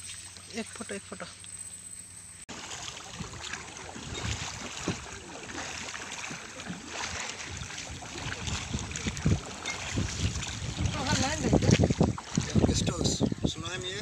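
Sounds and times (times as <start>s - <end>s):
water lapping against boat hull: 2.5s - 14.0s
wind buffeting microphone: 2.8s - 14.0s.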